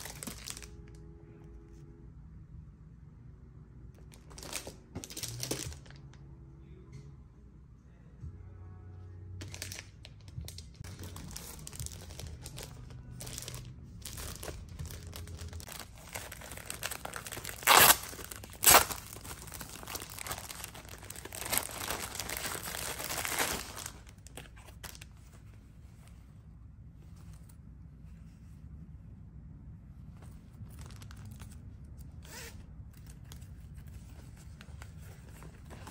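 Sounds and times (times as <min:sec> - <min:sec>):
plastic ripping: 0:00.0 - 0:00.8, 0:09.4 - 0:25.1
plastic packaging crinkling: 0:00.0 - 0:00.9, 0:04.1 - 0:06.1, 0:09.4 - 0:25.2.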